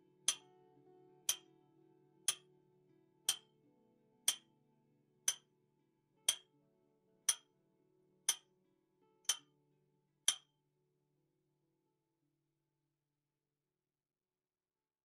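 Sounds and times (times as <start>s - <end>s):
faint background music: 0.0s - 10.5s.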